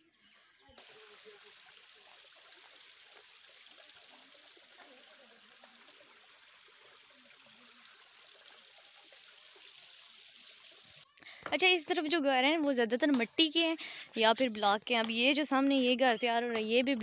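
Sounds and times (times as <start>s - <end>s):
stream trickling over stones: 0.8s - 11.1s.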